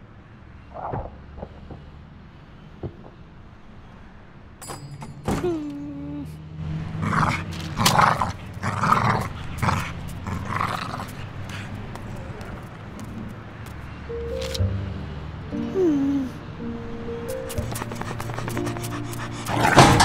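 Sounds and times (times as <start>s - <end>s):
dog rasping growls: 6.9s - 11.9s, 17.7s - 20.0s.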